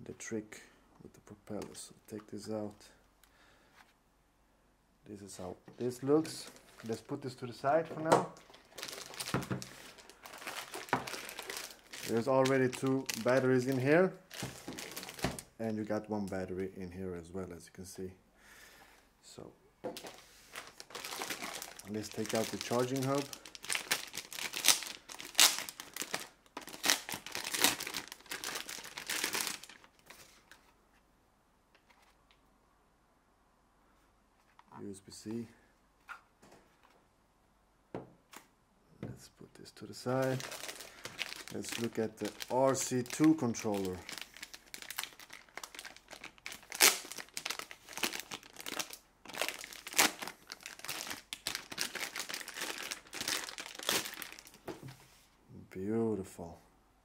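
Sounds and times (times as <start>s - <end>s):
plastic packaging crinkling and tearing: 5.8s - 15.5s, 20.0s - 30.6s, 40.0s - 54.7s.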